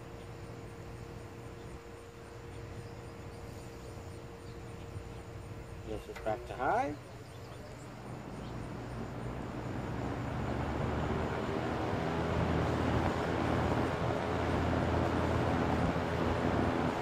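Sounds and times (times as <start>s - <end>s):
fan motor hum: 0.0s - 17.0s
box fan air whoosh: 8.1s - 17.0s.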